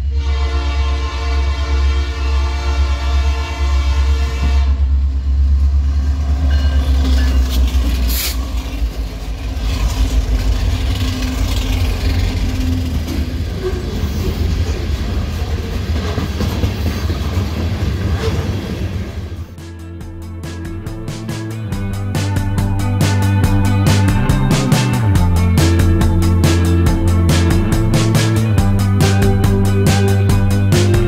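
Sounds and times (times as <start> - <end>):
locomotive horn: 0.0 - 5.0
diesel locomotive engine rumble: 0.0 - 31.0
train wheel noise: 0.0 - 31.0
freight cars rolling: 4.4 - 19.6.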